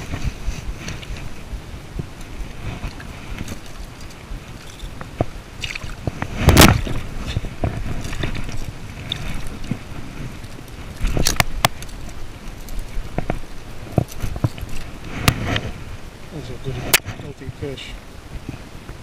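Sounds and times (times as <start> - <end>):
low steady rumble: 0.0 - 19.0
fish splashing at the surface: 5.6 - 9.6.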